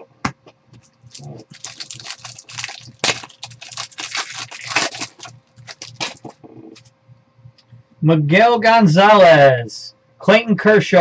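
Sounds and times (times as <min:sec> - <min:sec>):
foil wrapper crinkling and tearing: 0:01.1 - 0:06.9.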